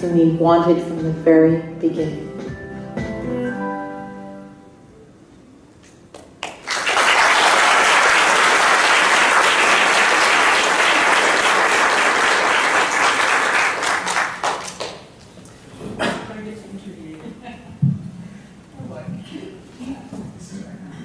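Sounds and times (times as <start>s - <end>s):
audience applauding: 6.4s - 15.1s.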